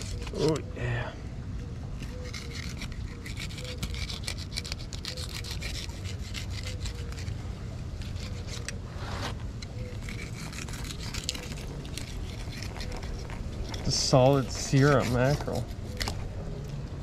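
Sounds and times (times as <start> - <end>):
knife sawing through fish: 0.0 - 0.6, 2.0 - 16.1.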